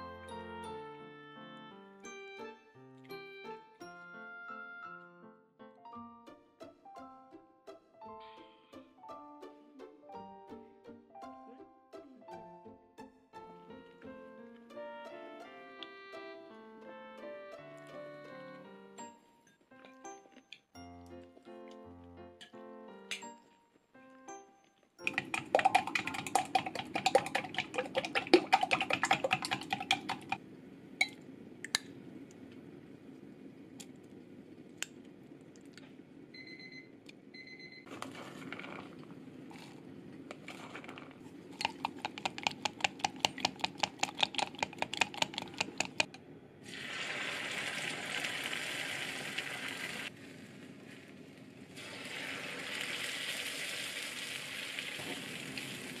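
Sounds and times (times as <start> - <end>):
chopsticks beating egg in glass: 25.0 - 30.4, 40.3 - 46.2
egg batter sizzling in hot pan: 46.6 - 56.0.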